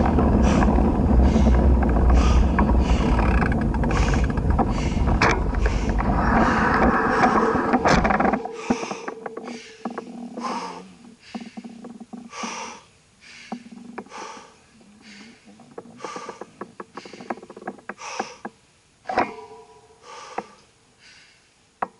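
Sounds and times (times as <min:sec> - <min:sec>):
bike clicks and rattles: 0:00.0 - 0:10.4, 0:15.1 - 0:18.6
person breathing hard: 0:00.2 - 0:18.5, 0:19.2 - 0:21.6.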